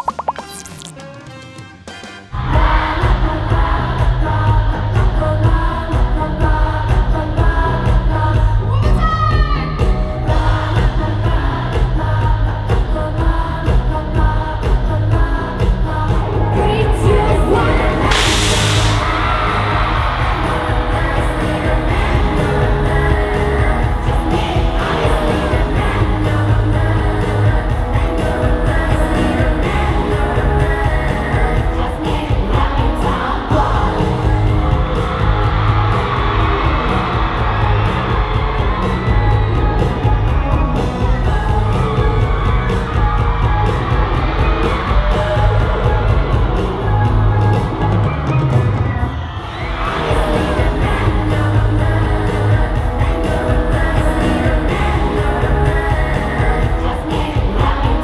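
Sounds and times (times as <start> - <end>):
backing track with heavy beat: 0.0 - 58.0
female voices singing: 2.4 - 9.0, 9.6 - 48.2, 49.3 - 58.0
audience yelling and cheering: 16.1 - 58.0.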